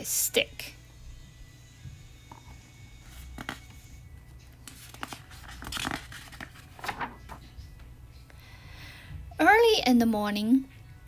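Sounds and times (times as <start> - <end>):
book page turning: 3.0 - 7.5.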